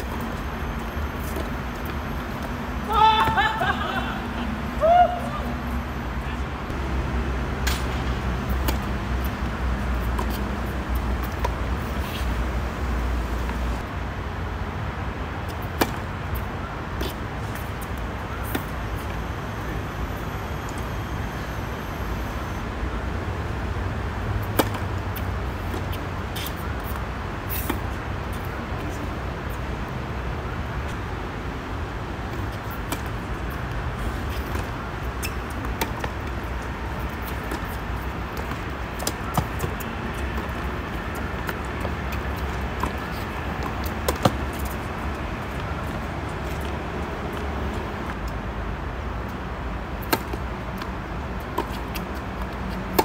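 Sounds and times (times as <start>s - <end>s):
tennis balls struck and bouncing: 7.5s - 12.2s, 15.5s - 16.1s, 24.4s - 27.9s, 34.3s - 48.3s, 50.0s - 53.0s.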